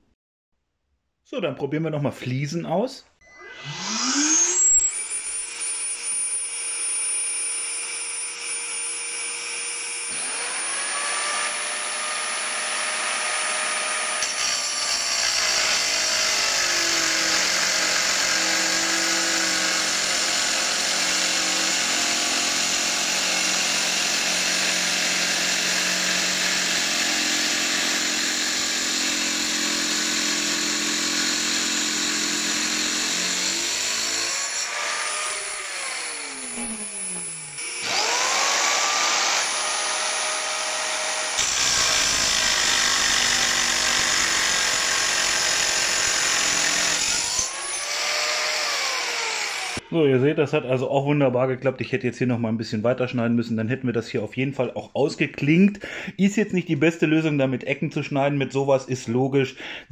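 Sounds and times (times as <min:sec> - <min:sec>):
circular saw motor: 0:03.4 - 0:50.0
saw blade grinding tile: 0:03.6 - 0:49.9
vacuum humming: 0:35.2 - 0:39.4.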